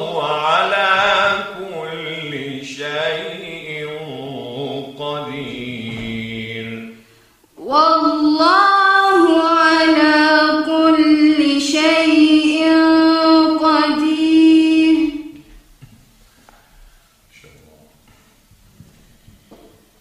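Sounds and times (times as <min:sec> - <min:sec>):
woman chanting melodically: 0:00.0 - 0:06.9, 0:07.6 - 0:15.5.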